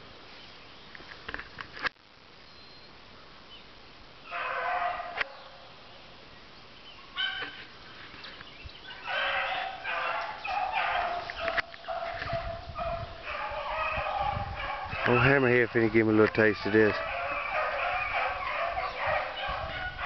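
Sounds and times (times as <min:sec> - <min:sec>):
hunting dogs baying: 0:04.3 - 0:05.7, 0:07.1 - 0:07.6, 0:08.8 - 0:20.0.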